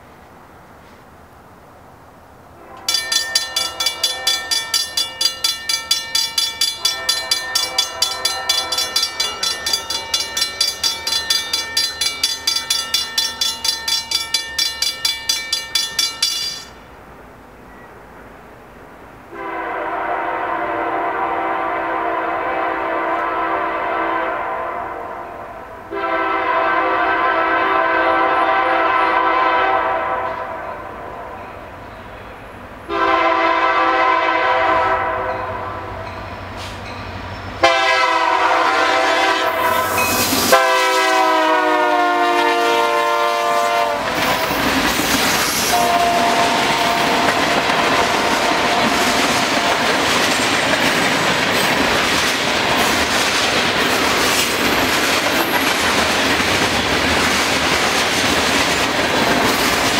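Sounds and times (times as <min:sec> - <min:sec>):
locomotive air horn blasts: 0:02.6 - 0:04.7, 0:06.8 - 0:09.2, 0:19.3 - 0:31.4, 0:32.9 - 0:36.0, 0:37.6 - 0:44.6, 0:45.6 - 0:49.9
railroad crossing bell ringing: 0:02.8 - 0:17.0, 0:35.2 - 0:44.6, 0:45.7 - 0:51.2.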